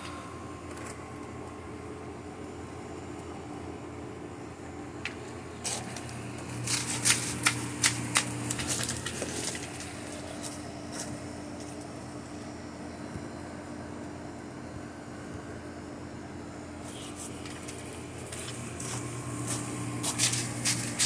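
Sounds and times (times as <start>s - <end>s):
steady low hum: 0.0s - 21.0s
burning paper crackling: 5.6s - 11.9s, 16.8s - 21.0s.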